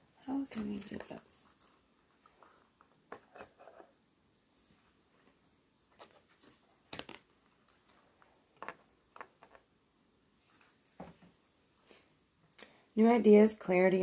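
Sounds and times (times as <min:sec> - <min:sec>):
card and paper rustling: 0:00.4 - 0:01.6, 0:05.2 - 0:09.6.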